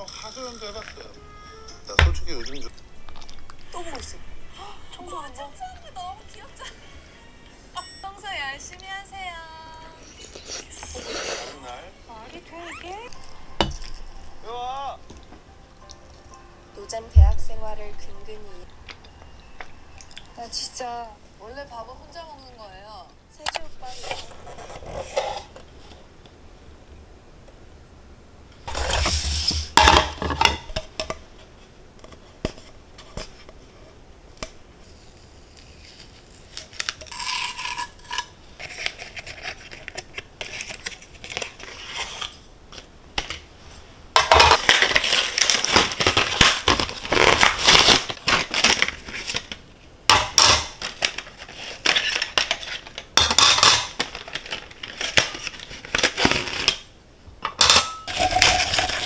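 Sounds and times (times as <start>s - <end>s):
dishes and utensils clattering: 13.1s - 15.4s, 28.7s - 31.2s, 44.2s - 48.8s, 51.8s - 55.0s, 57.4s - 59.0s.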